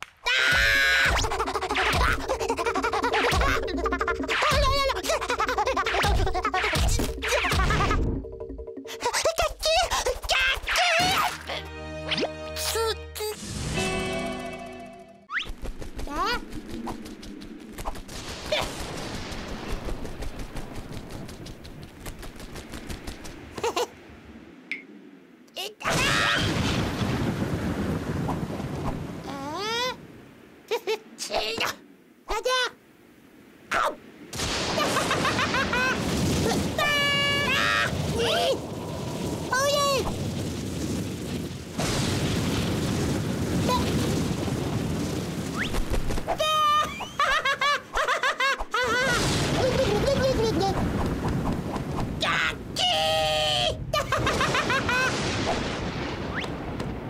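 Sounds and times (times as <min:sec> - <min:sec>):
rapid crackling wing flutter: 0:15.3 - 0:23.9, 0:43.2 - 0:46.4, 0:49.2 - 0:52.2
cartoon explosion rumble: 0:34.3 - 0:45.9, 0:48.8 - 0:51.0.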